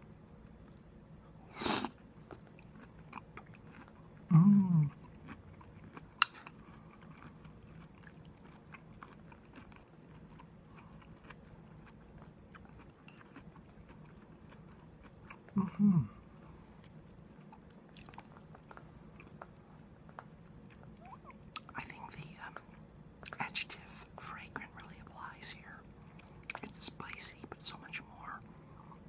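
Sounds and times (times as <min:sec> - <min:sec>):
person chewing: 0:01.6 - 0:15.8, 0:16.8 - 0:23.4
person humming low mm: 0:04.3 - 0:05.0, 0:15.5 - 0:16.3.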